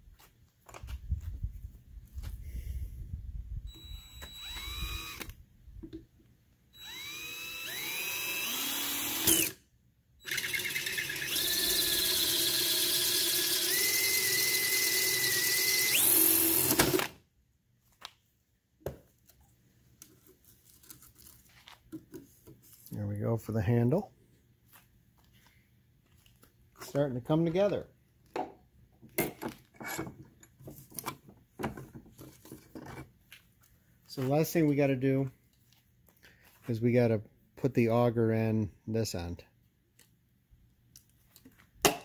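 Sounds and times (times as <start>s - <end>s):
cordless drill boring plastic pipe: 3.7s - 5.4s, 6.8s - 9.6s, 10.2s - 17.2s.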